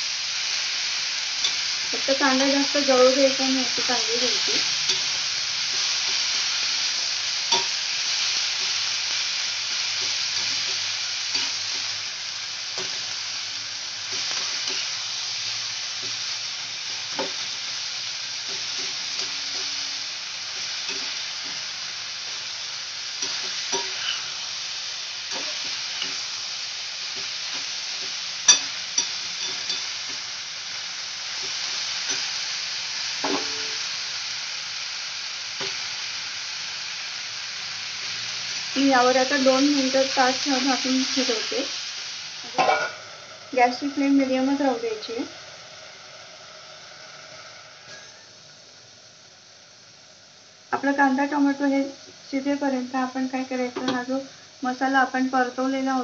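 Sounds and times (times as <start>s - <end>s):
vegetables sizzling in oil: 0.0s - 56.0s
metal spatula scraping pan: 23.2s - 24.4s, 42.5s - 44.4s, 47.8s - 48.3s.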